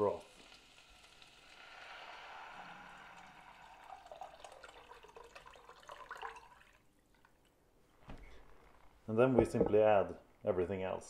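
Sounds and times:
liquid pouring and splashing: 0:00.0 - 0:07.6.

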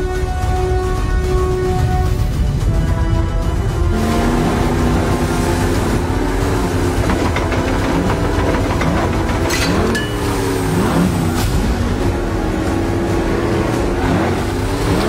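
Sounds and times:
rush of water and spray: 0:02.0 - 0:07.3
outboard motorboat engines revving: 0:03.4 - 0:15.0
sharp knocks: 0:06.7 - 0:10.5.

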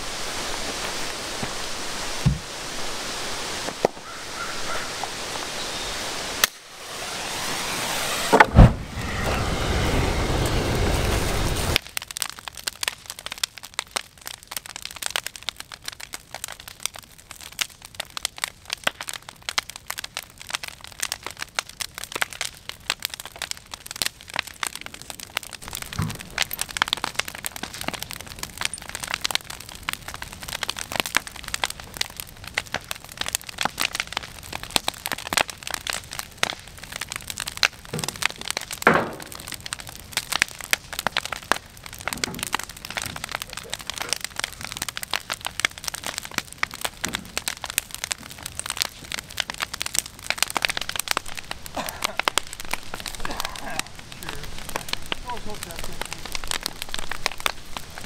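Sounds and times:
bonfire crackling and popping: 0:00.0 - 0:58.0
dull thump: 0:02.2 - 0:02.5, 0:08.2 - 0:09.0
loud thump: 0:02.2 - 0:02.5, 0:07.8 - 0:10.4
rushing noise: 0:04.9 - 0:11.8.

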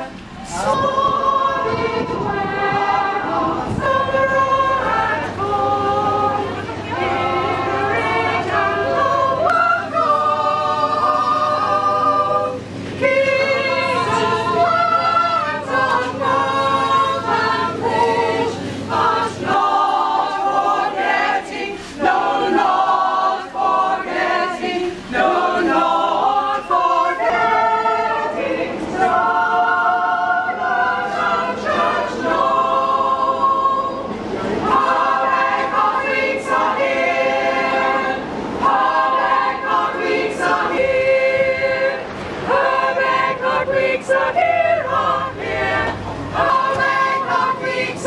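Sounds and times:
steady low hum: 0:00.0 - 0:48.0
women's choir singing: 0:00.0 - 0:48.0.

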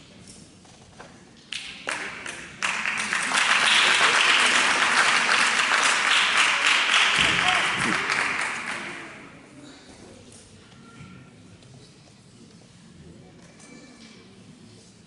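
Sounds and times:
audience applause: 0:01.9 - 0:09.3.

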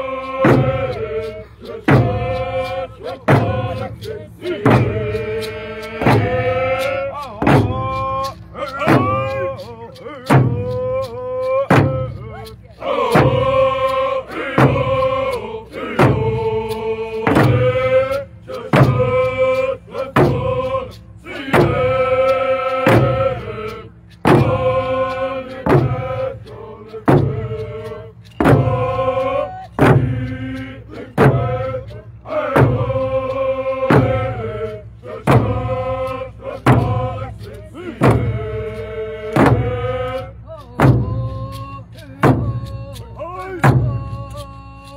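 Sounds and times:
group chanting in unison: 0:00.0 - 0:42.6
frame drums beating: 0:00.0 - 0:44.9.

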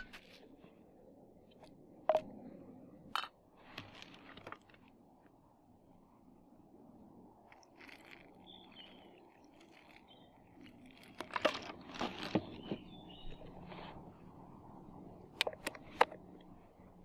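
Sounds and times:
water pouring from plastic bottle: 0:07.5 - 0:12.9.

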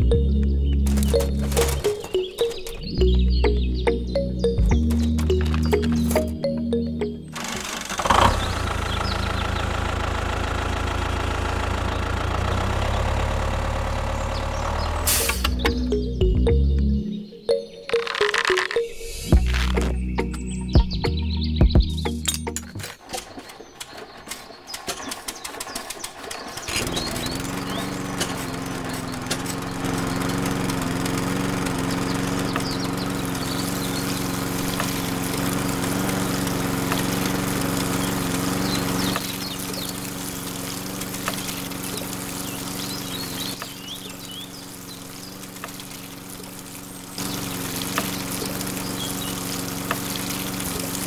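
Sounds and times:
small motor humming: 0:07.3 - 0:15.7, 0:26.5 - 0:51.0
water splashing: 0:26.8 - 0:51.0.

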